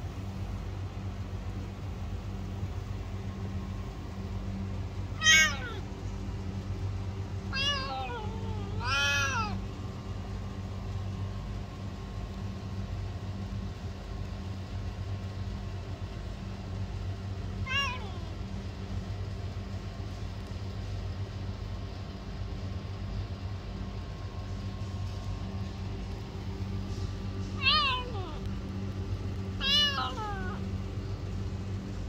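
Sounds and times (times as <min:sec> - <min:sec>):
cat meowing: 0:05.1 - 0:05.9, 0:07.4 - 0:09.7, 0:17.6 - 0:18.4, 0:27.6 - 0:28.5, 0:29.6 - 0:30.7.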